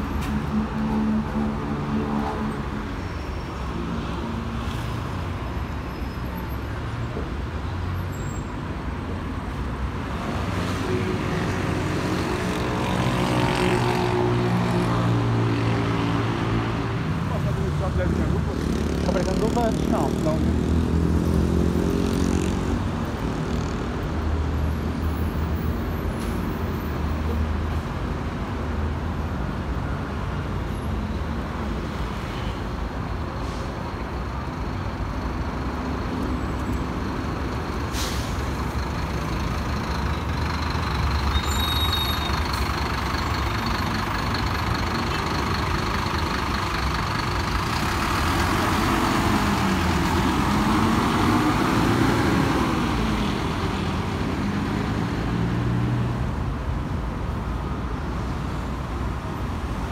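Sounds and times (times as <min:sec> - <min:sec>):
bus engines droning: 0:00.0 - 0:59.9.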